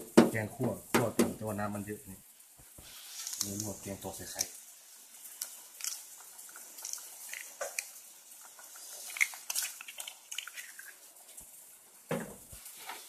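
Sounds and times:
curry simmering and bubbling: 2.4 - 13.0
egg cracking: 2.6 - 12.6.

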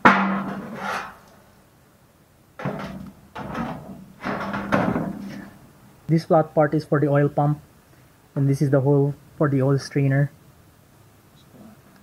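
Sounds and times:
metal scraping against metal tray: 0.0 - 1.3.

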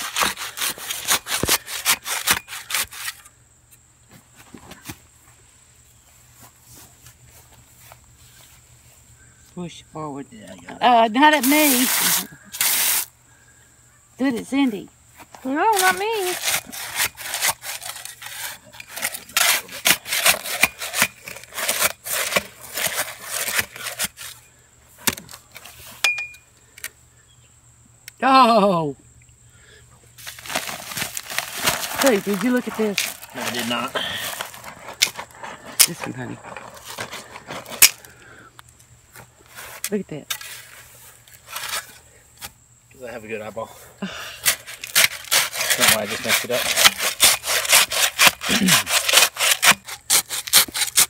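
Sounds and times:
shovel scraping concrete mix: 0.0 - 3.3, 11.2 - 13.1, 15.5 - 26.0, 30.2 - 38.2, 39.5 - 42.5, 44.4 - 51.0.

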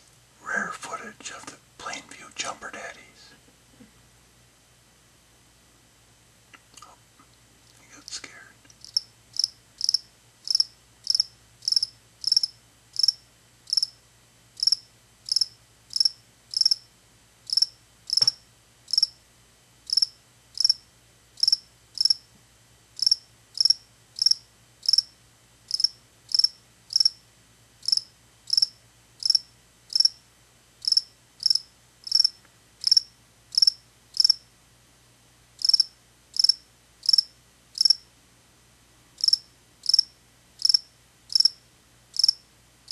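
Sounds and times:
cricket chirping: 8.8 - 14.0, 14.6 - 16.9, 17.5 - 19.2, 19.9 - 22.2, 23.0 - 27.2, 27.8 - 30.2, 30.8 - 34.4, 35.6 - 38.1, 39.2 - 42.9.

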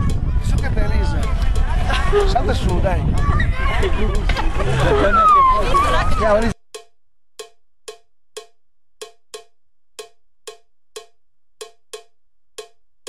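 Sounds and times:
cowbell-like percussion hits: 6.8 - 12.8.

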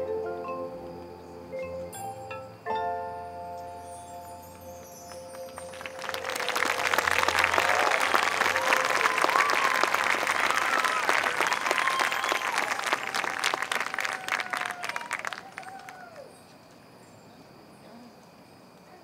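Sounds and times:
crowd applauding and cheering: 4.9 - 16.3
scattered shouts: 7.4 - 12.8.

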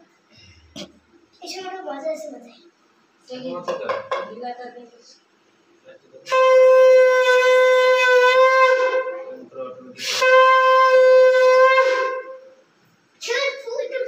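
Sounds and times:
conch shell blasts: 6.2 - 12.6.

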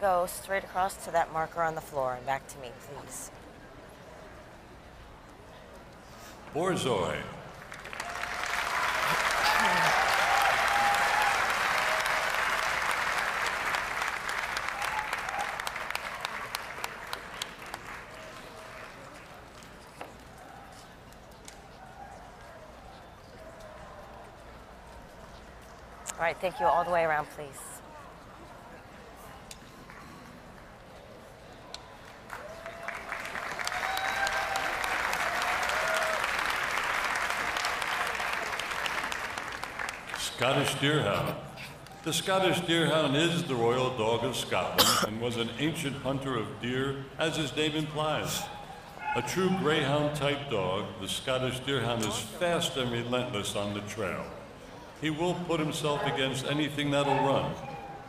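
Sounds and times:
audience applauding: 7.5 - 19.8, 32.1 - 40.8.

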